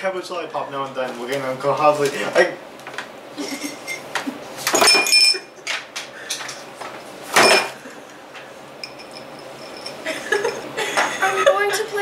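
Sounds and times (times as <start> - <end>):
short ringing clink: 4.8 - 5.5.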